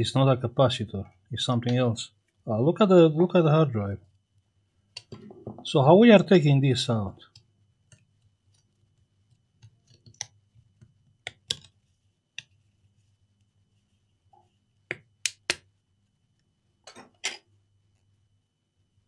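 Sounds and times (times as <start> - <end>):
sharp clicks and taps: 9.6 - 12.6, 14.8 - 15.7.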